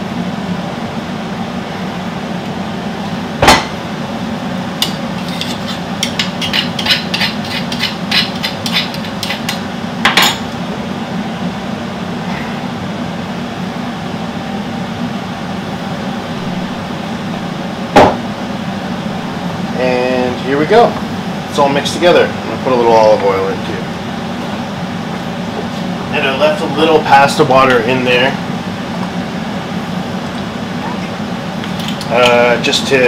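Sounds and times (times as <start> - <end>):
steady low hum: 0.0 - 33.0
utensils clanking on cookware: 4.8 - 10.5.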